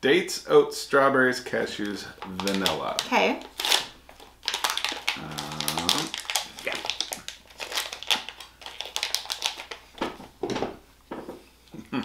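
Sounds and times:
plastic wrapper crinkling: 1.7s - 10.2s.

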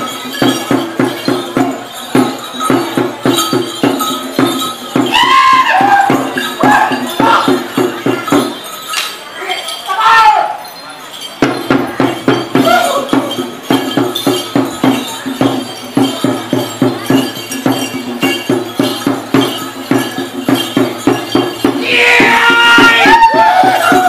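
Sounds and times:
drum beaten in fast rhythm: 0.0s - 9.2s, 11.1s - 24.0s
dancers shouting: 5.1s - 7.4s, 21.8s - 24.0s.

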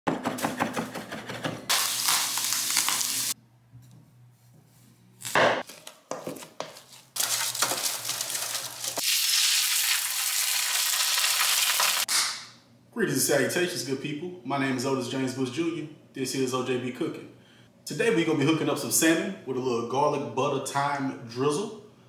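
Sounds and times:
knife chopping on wooden board: 0.1s - 1.5s
fish sizzling in frying pan: 1.7s - 3.4s, 7.2s - 12.1s
potatoes mashed in metal bowl: 6.2s - 9.0s.

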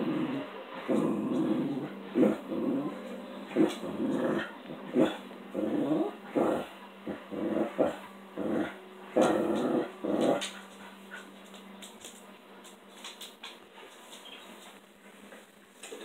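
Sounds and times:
dog grunting: 0.0s - 11.3s.

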